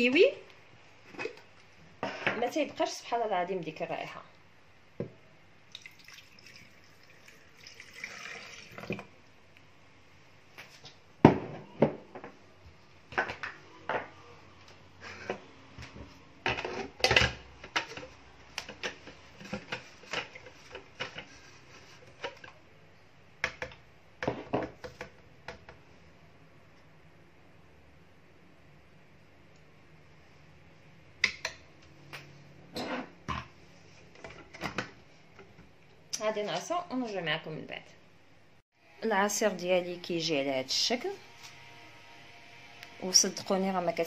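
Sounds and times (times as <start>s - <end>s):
liquid being poured: 5.7s - 9.1s.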